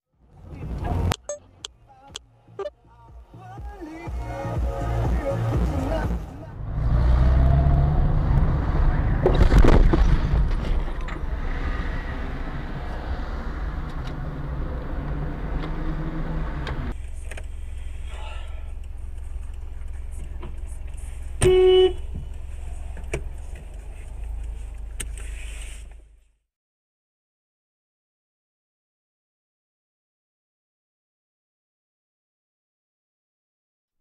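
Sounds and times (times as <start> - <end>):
road and engine rumble: 0.1 - 26.4
car horn toot: 21.4 - 22.1.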